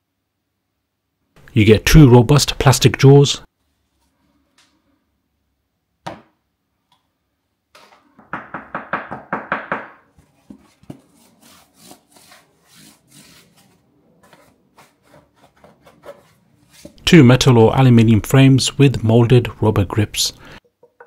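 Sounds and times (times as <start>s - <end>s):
soft knocks and rubs: 10.1s - 17.0s.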